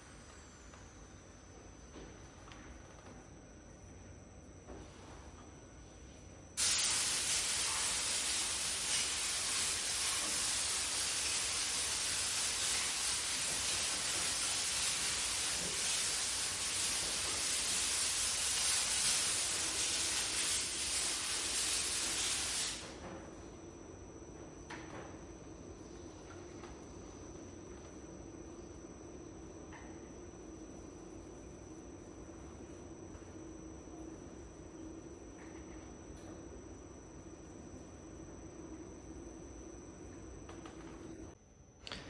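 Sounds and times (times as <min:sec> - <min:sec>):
loud steady hiss: 0:06.6 - 0:23.0.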